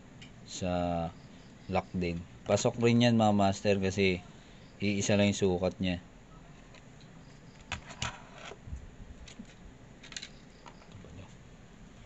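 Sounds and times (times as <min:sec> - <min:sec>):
small metal parts clicking: 0:09.3 - 0:11.0.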